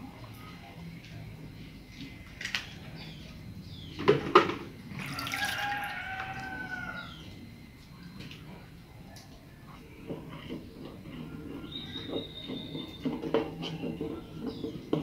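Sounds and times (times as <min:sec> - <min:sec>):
juice pouring into a pot: 0:04.9 - 0:06.6.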